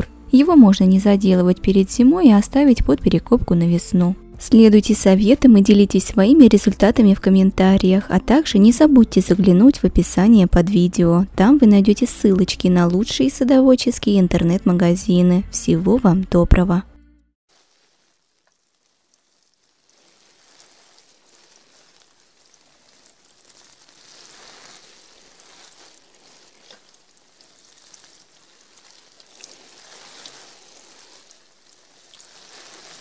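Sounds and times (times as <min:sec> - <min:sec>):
faint rain hiss: 0:17.5 - 0:33.0
rain drips ticking: 0:17.6 - 0:33.0.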